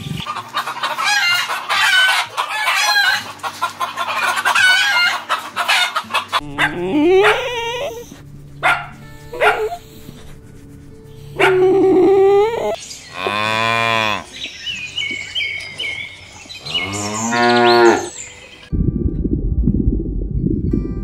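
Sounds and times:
cattle mooing: 6.4s - 8.1s, 11.4s - 14.3s, 16.6s - 18.1s
dog barking: 6.5s - 8.0s, 8.6s - 9.8s, 11.4s - 11.6s.

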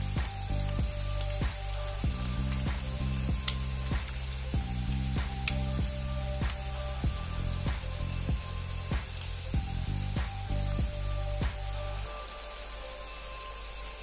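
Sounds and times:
background music: 0.0s - 14.0s
food deep-frying in oil: 0.0s - 14.0s.

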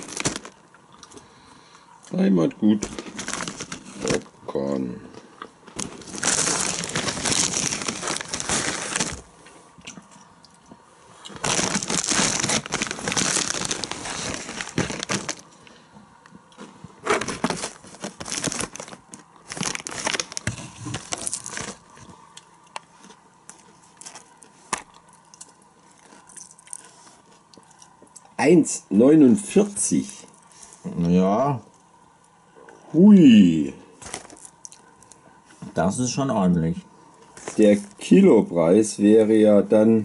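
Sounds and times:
foil bag crinkling and rustling: 0.0s - 0.6s, 2.7s - 4.4s, 5.7s - 9.3s, 11.3s - 15.6s, 16.6s - 22.1s, 23.0s - 24.9s, 34.0s - 35.2s, 37.4s - 38.2s.

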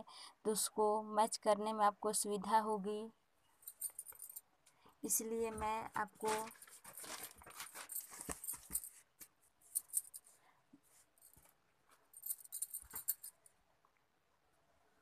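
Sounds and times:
paper crackling rustle: 5.5s - 9.4s.

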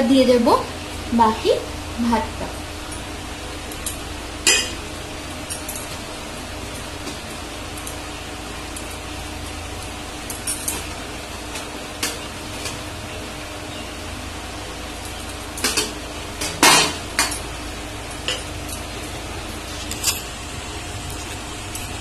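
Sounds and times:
steady low hum: 0.0s - 22.0s
metal utensils clinking on pots: 3.8s - 4.8s, 15.1s - 17.5s, 18.2s - 18.9s.

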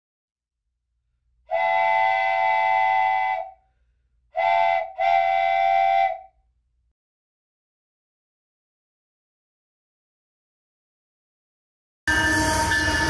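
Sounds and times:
train horn blasts: 1.5s - 3.6s, 4.4s - 6.3s, 12.1s - 13.0s.

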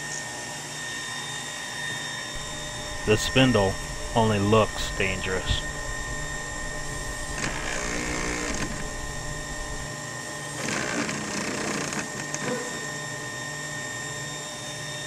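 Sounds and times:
machine hum with thin whine: 0.0s - 15.0s
rough hissing noise: 2.4s - 9.9s.

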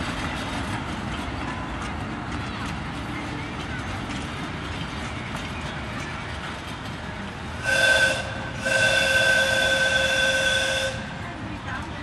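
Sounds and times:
locomotive rumbling: 0.0s - 12.0s
train whistle blasts: 7.6s - 11.1s.

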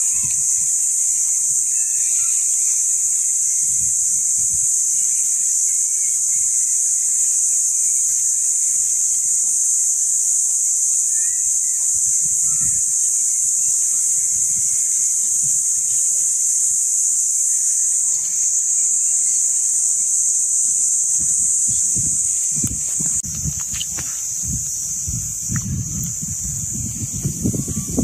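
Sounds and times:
high-pitched hiss: 0.0s - 28.0s
faint low thuds: 21.1s - 28.0s.

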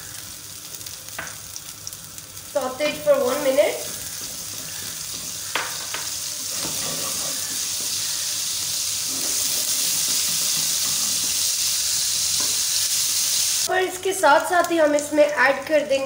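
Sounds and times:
paste sizzling in hot oil: 0.0s - 15.4s
spatula stirring in wok: 3.2s - 11.6s
spatula tapping pan: 4.1s - 8.0s, 9.9s - 11.5s.

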